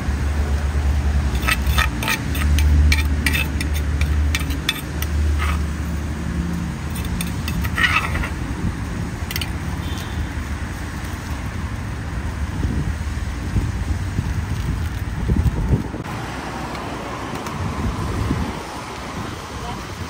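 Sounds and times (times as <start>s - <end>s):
metal spoon scraping clay mortar: 1.3s - 8.5s, 9.2s - 10.2s.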